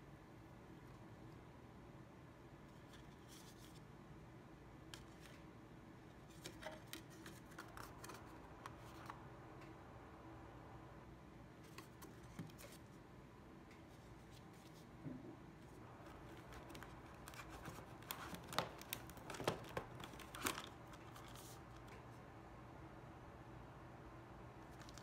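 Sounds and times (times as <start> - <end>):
low steady hum: 0.0 - 25.0
card rustling and clicking: 6.3 - 9.2, 11.6 - 13.0, 15.7 - 22.0, 24.6 - 25.0.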